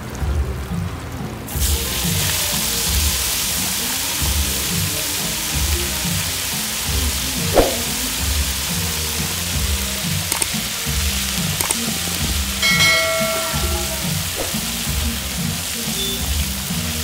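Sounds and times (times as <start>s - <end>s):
food deep-frying in oil: 0.0s - 17.0s
background music with a beat: 4.2s - 17.0s.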